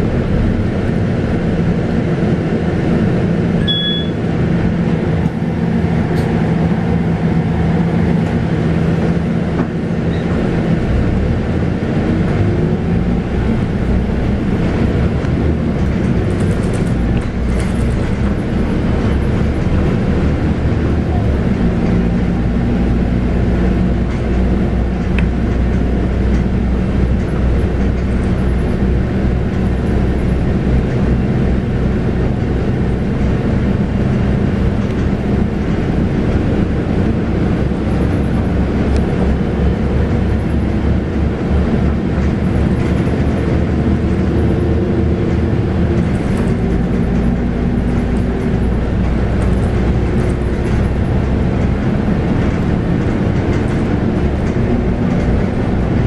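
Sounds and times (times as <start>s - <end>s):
bus diesel engine drone: 0.0s - 56.0s
road and body rumble: 0.0s - 56.0s.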